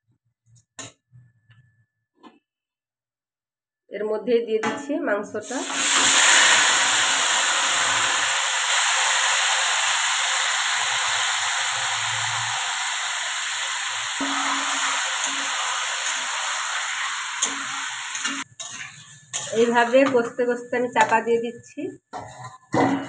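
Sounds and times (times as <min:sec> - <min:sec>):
chicken sizzling in hot oil: 0:05.4 - 0:20.6
metal spatula stirring meat: 0:14.2 - 0:21.2, 0:22.1 - 0:22.9.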